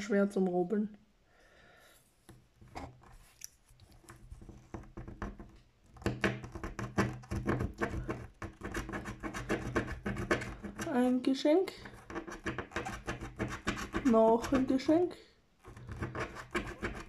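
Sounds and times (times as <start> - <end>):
fingernail scratching lottery ticket: 4.4 - 11.2, 11.8 - 15.0, 15.6 - 17.0.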